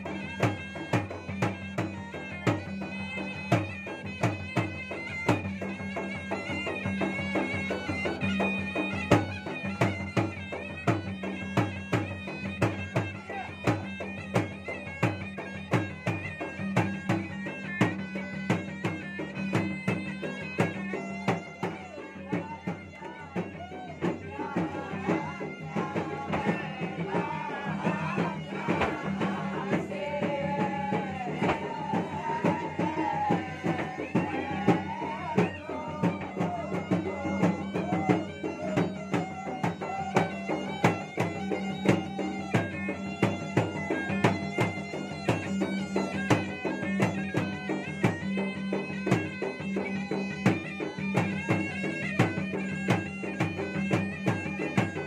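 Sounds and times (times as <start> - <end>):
drums beaten in fast rhythm: 0.0 - 55.0
wind instrument wavering melody: 0.0 - 55.0.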